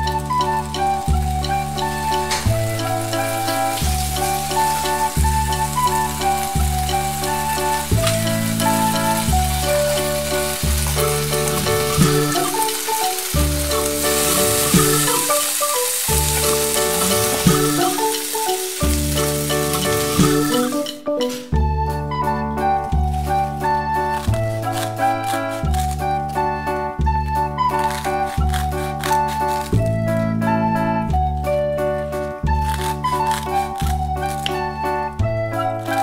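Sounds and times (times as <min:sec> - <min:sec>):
background music with bass line: 0:00.0 - 0:15.5, 0:16.1 - 0:36.0
bacon sizzling in a pan: 0:00.0 - 0:20.8, 0:27.8 - 0:29.8, 0:32.6 - 0:34.4.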